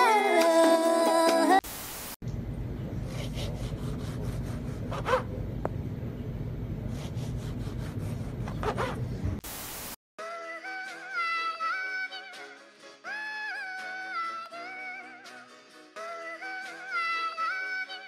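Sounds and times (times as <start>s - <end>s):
music: 0.0s - 1.6s, 10.2s - 18.0s
bread knife sawing through loaf: 3.1s - 5.3s, 6.9s - 9.0s.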